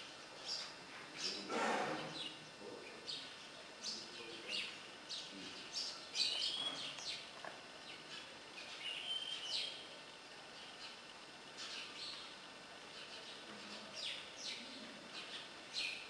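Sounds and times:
small birds chirping: 0.0s - 16.0s
bird whistles: 6.2s - 6.9s, 8.8s - 9.8s.

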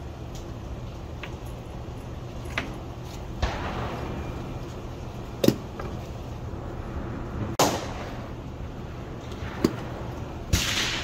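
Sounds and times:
gunshots with echo: 10.5s - 11.0s.

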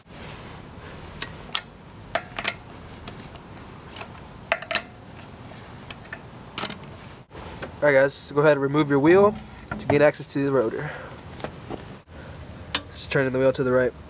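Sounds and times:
lug wrench clinking on lug nuts: 1.2s - 7.0s, 12.7s - 13.0s.

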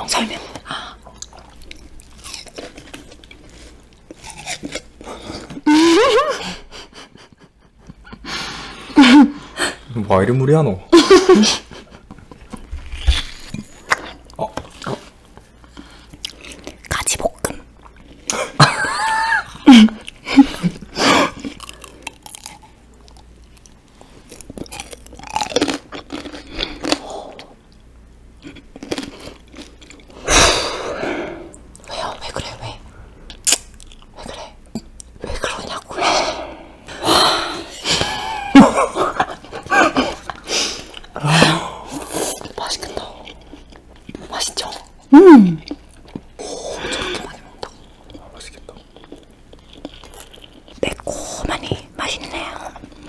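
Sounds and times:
crunchy chewing: 1.1s - 5.6s, 21.3s - 27.8s, 28.4s - 30.2s, 41.9s - 51.6s
small clicks and mouth sounds: 33.3s - 35.9s.

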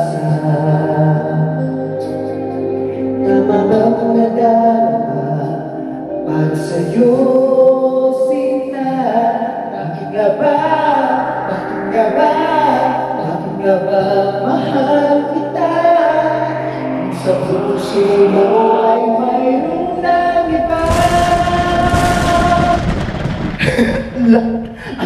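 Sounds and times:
man singing a ballad: 0.0s - 25.0s
loud rushing crash: 19.6s - 24.4s.

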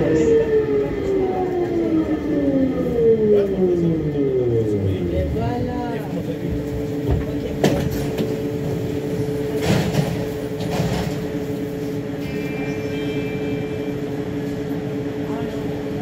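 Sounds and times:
train electrical hum: 0.0s - 16.0s
high-pitched signal: 12.2s - 14.3s.

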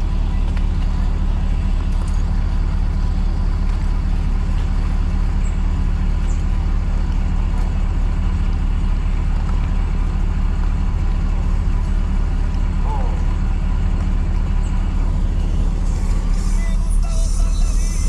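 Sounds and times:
road vehicle rumble: 0.0s - 18.0s.

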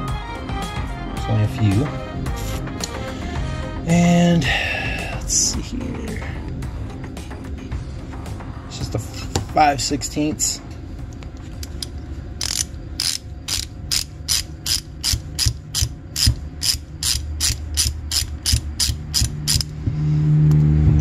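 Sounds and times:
low steady hum: 0.9s - 21.0s
socket ratchet clicking: 11.6s - 19.8s.

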